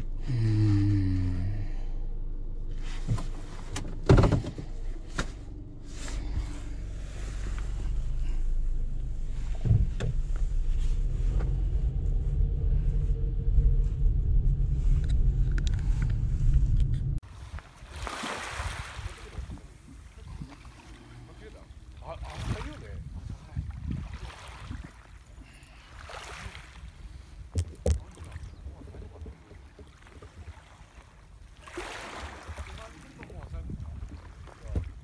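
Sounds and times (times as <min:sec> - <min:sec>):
car engine and road noise: 0:01.2 - 0:17.8.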